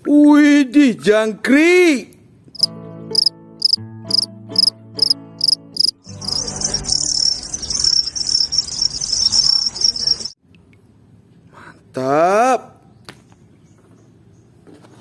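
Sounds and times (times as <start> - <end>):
crickets chirping: 2.6 - 10.4.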